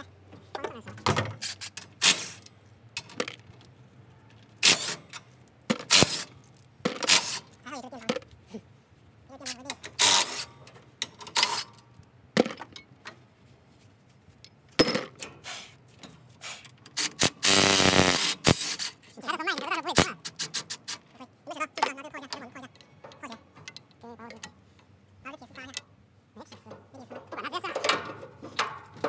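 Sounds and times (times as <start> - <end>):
metal tools clinking: 21.7 - 24.9, 25.5 - 29.0.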